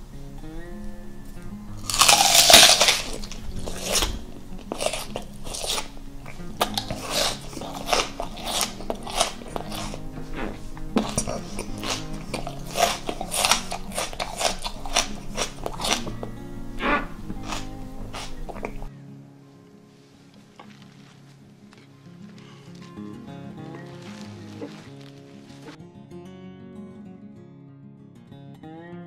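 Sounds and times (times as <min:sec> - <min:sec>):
crunchy chewing: 0:01.2 - 0:18.9
crunchy bite into onion: 0:01.8 - 0:18.9.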